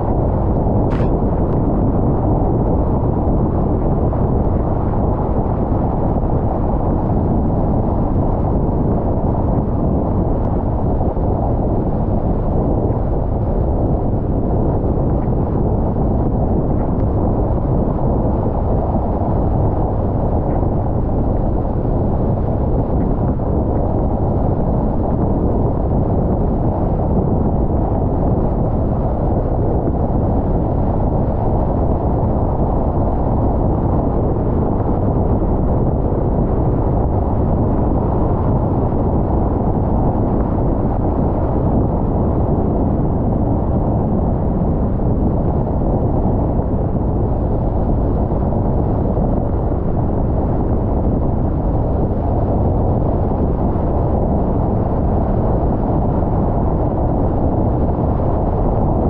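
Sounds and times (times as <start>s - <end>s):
road and tyre noise: 0.0s - 7.1s.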